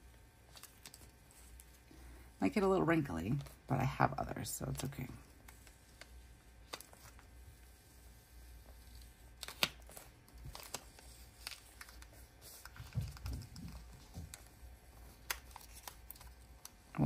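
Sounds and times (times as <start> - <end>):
tape peeling off paper: 8.6 - 13.7, 14.3 - 16.9.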